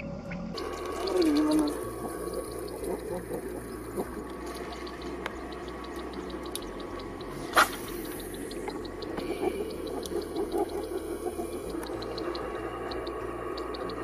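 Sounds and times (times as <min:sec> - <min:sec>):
faint fast ticking: 0:00.0 - 0:14.0
water washing: 0:00.0 - 0:14.0
sharp splash-like crack: 0:07.5 - 0:07.9.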